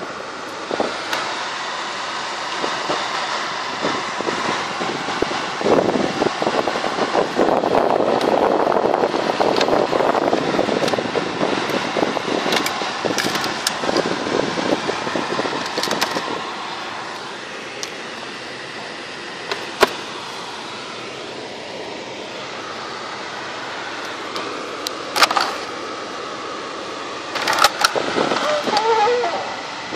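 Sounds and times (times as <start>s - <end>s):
car cabin mechanical hum: 0.0s - 29.9s.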